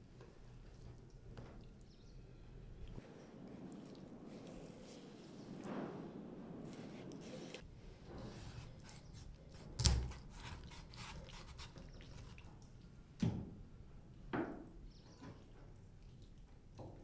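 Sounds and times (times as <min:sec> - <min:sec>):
wet squishes: 0:08.8 - 0:13.0.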